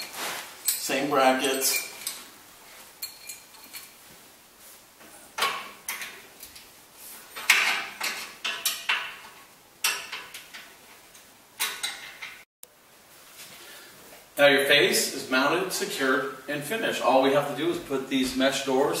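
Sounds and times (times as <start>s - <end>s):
metallic clinks and knocks: 0.0s - 2.3s, 3.0s - 4.0s, 7.4s - 10.8s.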